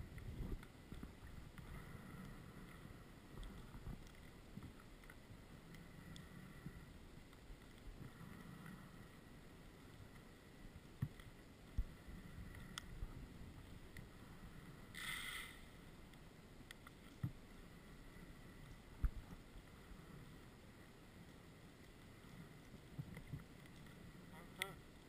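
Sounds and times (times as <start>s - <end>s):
underwater rumble: 0.0s - 25.0s
brief hiss: 14.9s - 15.7s.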